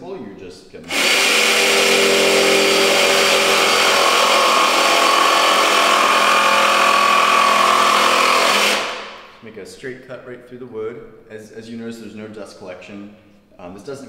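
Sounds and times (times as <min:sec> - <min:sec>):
jigsaw cutting plywood: 0:00.9 - 0:09.2.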